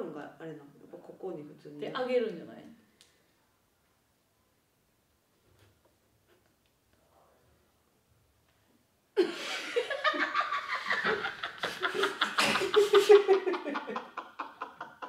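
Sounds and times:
people laughing: 0:09.2 - 0:15.0.

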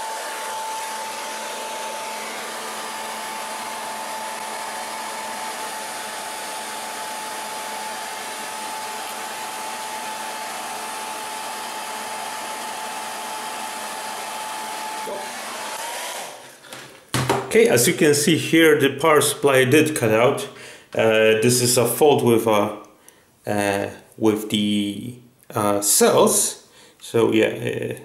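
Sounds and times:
hair dryer blowing: 0:00.0 - 0:16.8.

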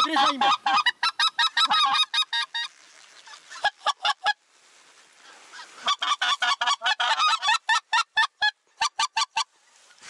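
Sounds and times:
goose call honks: 0:00.0 - 0:02.7.

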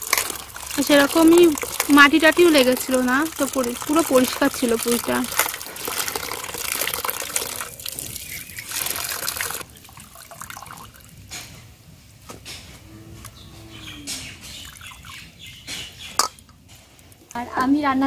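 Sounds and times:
hose water into steel bowl: 0:00.0 - 0:11.2
water dripping: 0:00.0 - 0:11.4, 0:13.8 - 0:17.7.

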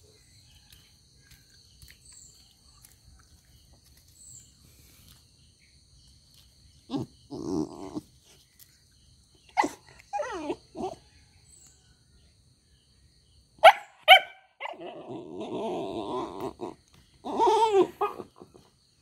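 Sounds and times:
puppy barking and yelping: 0:06.9 - 0:08.4, 0:09.5 - 0:11.0, 0:13.6 - 0:18.7.

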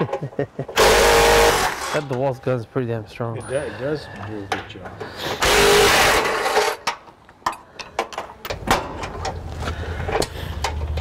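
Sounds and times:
impact wrench buzzing: 0:00.8 - 0:02.0, 0:05.3 - 0:06.9.

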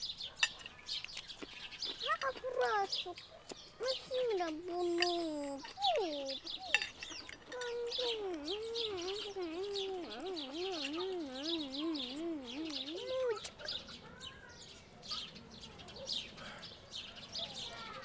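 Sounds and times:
small birds chirping: 0:00.0 - 0:18.0
wavering voice-like hum: 0:07.6 - 0:13.5.

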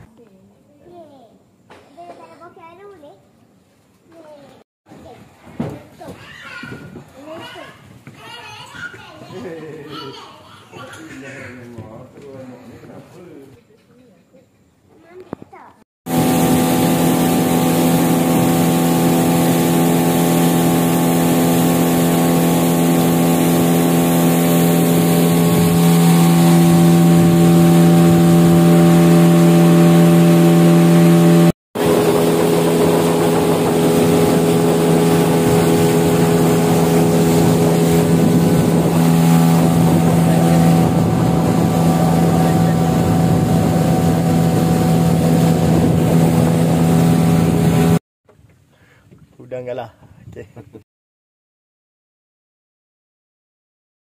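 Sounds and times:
wind: 0:00.0 - 0:50.8
boat engine drone: 0:16.1 - 0:48.0
rushing water: 0:16.1 - 0:48.0.

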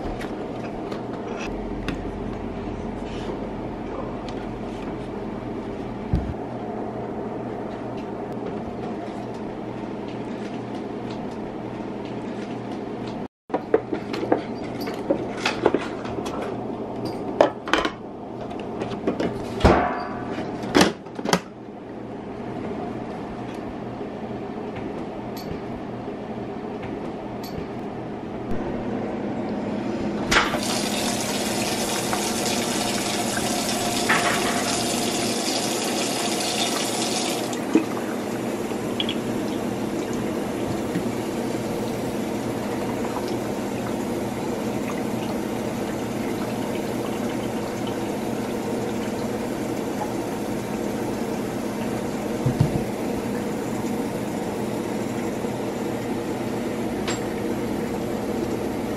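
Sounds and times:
faucet water filling plastic tank: 0:30.4 - 0:56.0.

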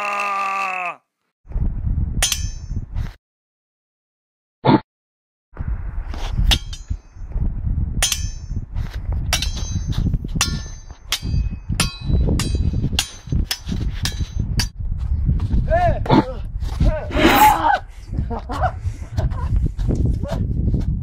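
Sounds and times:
low rumble: 0:01.5 - 0:02.8, 0:05.6 - 0:10.1
metal swords clashing: 0:02.2 - 0:02.8, 0:06.5 - 0:07.1, 0:08.0 - 0:08.6, 0:09.3 - 0:14.7, 0:17.2 - 0:17.7.

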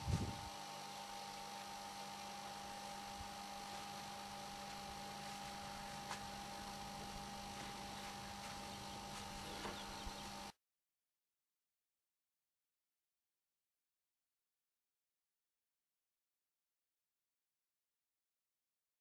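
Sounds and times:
electrical hum: 0:00.0 - 0:10.6.

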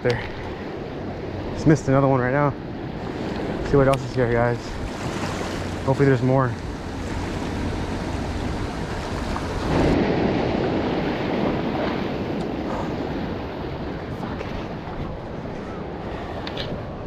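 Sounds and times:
waves washing against rocks: 0:03.0 - 0:15.2
wind on microphone: 0:06.5 - 0:17.0.

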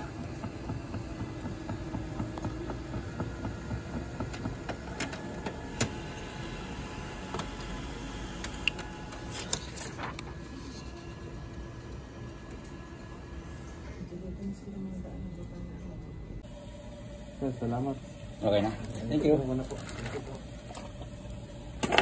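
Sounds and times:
printer whirring: 0:00.0 - 0:22.0.

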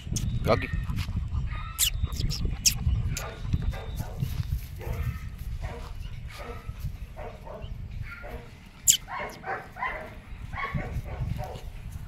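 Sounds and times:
high dog squeak: 0:01.6 - 0:03.9, 0:08.8 - 0:09.4.

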